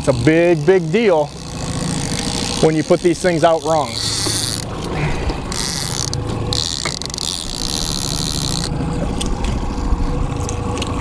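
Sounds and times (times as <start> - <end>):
fishing reel ratcheting: 0.0 - 10.2
boat motor humming: 0.0 - 11.0.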